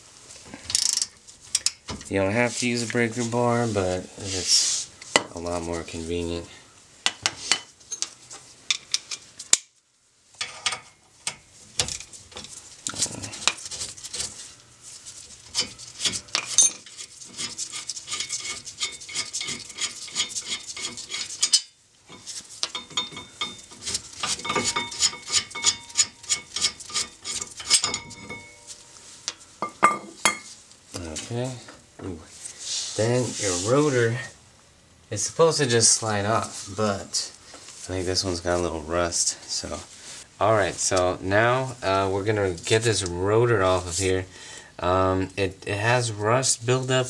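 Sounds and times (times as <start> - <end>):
metal tools and bolts clinking: 7.9 - 8.1, 16.3 - 17.0, 21.4 - 28.7.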